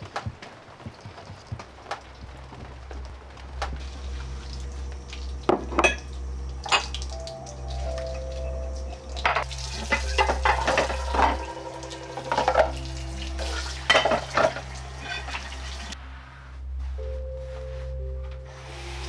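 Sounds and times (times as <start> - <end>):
steady low hum: 0.0 - 19.0
ceramic dishes clinking: 5.5 - 6.1, 9.2 - 15.9.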